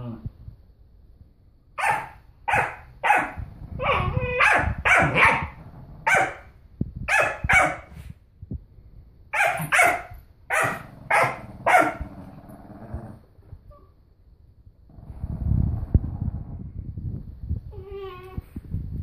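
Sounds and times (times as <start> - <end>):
dog barking: 1.8 - 6.5, 7.1 - 7.9, 9.3 - 12.0.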